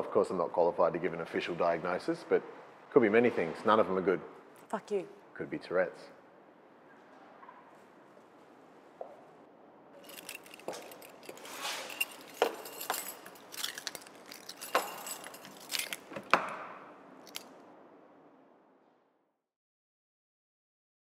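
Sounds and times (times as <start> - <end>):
keys jangling: 10.0 - 17.5.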